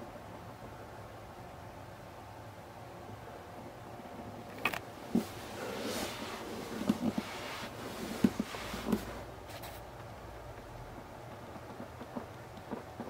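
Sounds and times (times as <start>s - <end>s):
rustling: 4.4s - 10.1s.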